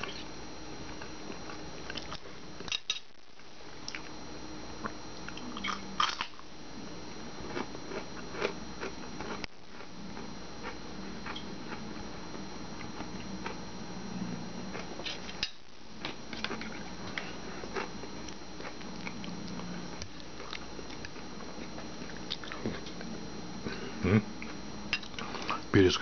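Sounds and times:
person chewing food: 4.8 - 6.5, 7.4 - 13.6, 16.0 - 23.8, 24.4 - 25.6.

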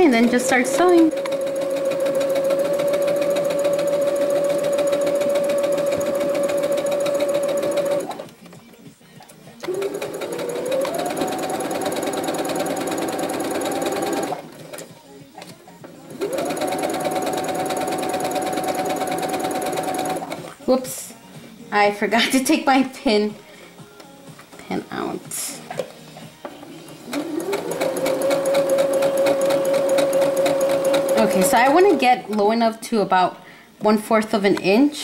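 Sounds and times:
sewing machine running: 0.0 - 8.3, 9.6 - 14.9, 16.1 - 20.6, 27.0 - 32.3.

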